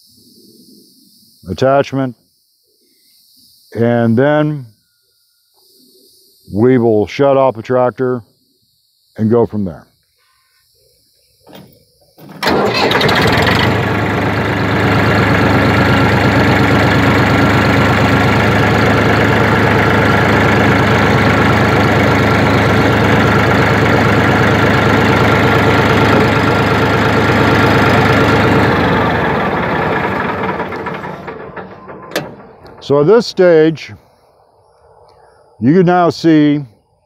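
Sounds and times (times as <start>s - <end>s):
tractor diesel engine running: 12.3s - 33.9s.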